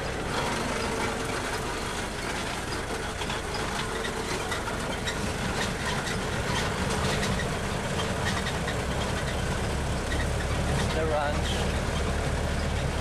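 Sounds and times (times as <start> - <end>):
rattles and knocks from ride: 0.0 - 13.0
tram engine droning: 0.0 - 13.0.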